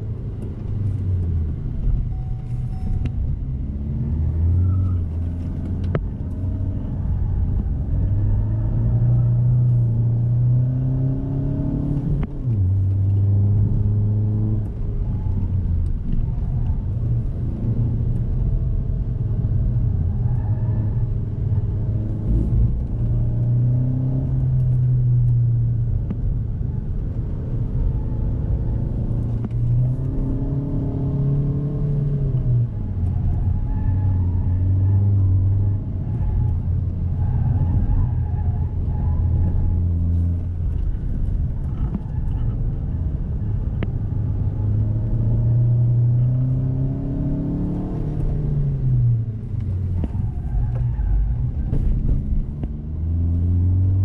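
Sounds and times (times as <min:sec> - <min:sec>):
tyre and road rumble: 0:00.0 - 0:54.0
car engine revving: 0:03.4 - 0:54.0.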